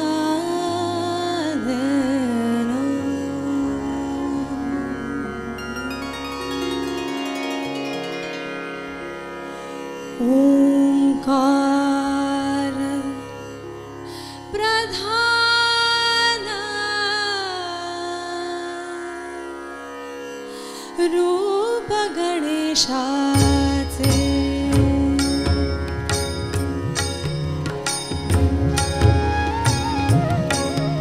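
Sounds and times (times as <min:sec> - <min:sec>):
woman singing devotional melody: 0:00.0 - 0:06.9, 0:10.2 - 0:19.8, 0:20.5 - 0:26.9
keyboard accompaniment: 0:23.4 - 0:31.0.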